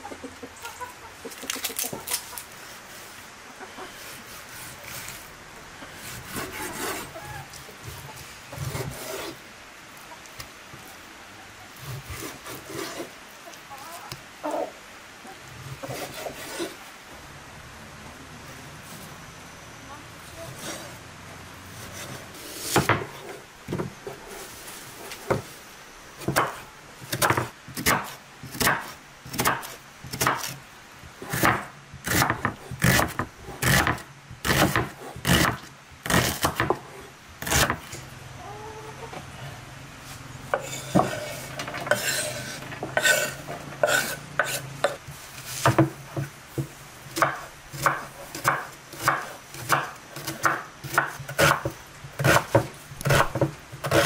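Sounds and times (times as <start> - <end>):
knife chopping on wooden board: 26.2 - 30.6, 31.3 - 36.8, 45.6 - 54.0.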